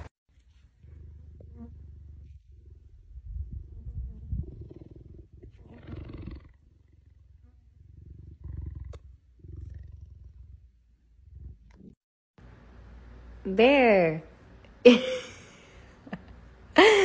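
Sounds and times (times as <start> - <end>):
cheetah purring: 0.3 - 12.0.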